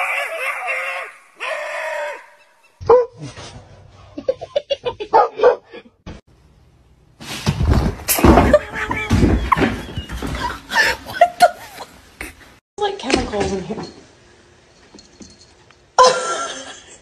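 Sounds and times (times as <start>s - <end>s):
person laughing loudly: 4.2s - 5.8s.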